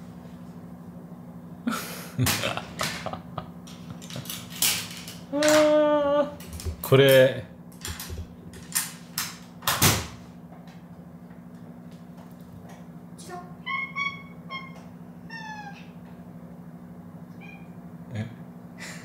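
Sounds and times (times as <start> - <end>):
cats meowing: 13.6 - 16.0, 17.3 - 17.8.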